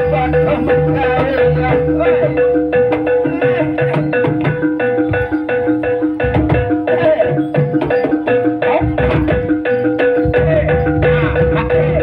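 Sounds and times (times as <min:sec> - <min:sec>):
gamelan metallic percussion: 0:00.0 - 0:12.0.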